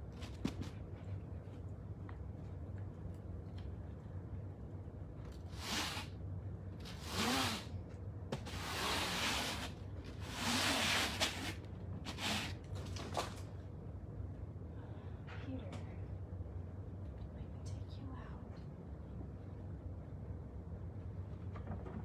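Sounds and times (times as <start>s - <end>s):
broom sweeping foam mats: 5.5s - 6.2s, 6.8s - 7.7s, 8.3s - 12.6s.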